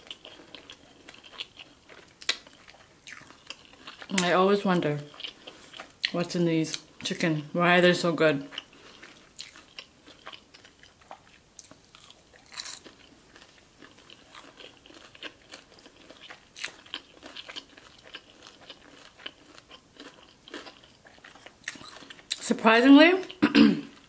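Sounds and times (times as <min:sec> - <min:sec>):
crispy chicken crunching: 0:00.0 - 0:04.3, 0:08.5 - 0:22.4.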